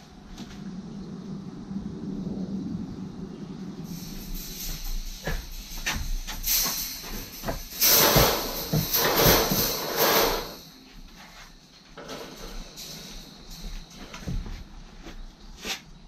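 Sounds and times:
wire mesh fence panel scraping: 3.9 - 10.7.

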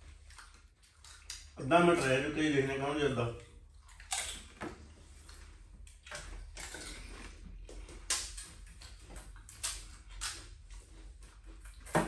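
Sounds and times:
crisp shells cracking and bitten: 3.9 - 4.6, 8.0 - 10.6.

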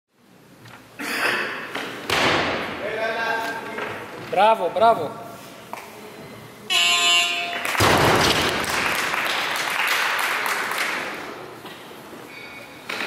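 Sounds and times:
buzzer sounding: 6.7 - 7.8
crowd applauding: 7.6 - 11.2.

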